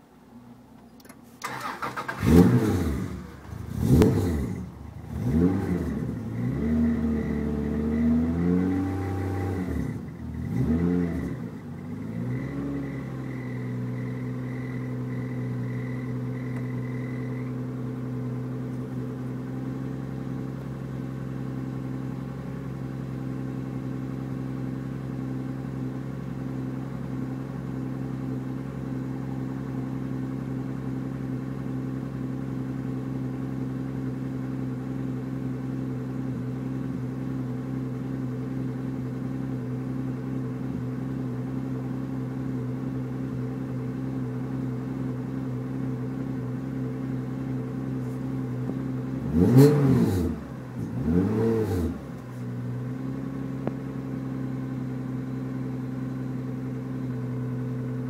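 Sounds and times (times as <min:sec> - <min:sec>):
car engine starting and revving: 0:01.0 - 0:20.6, 0:47.5 - 0:58.0.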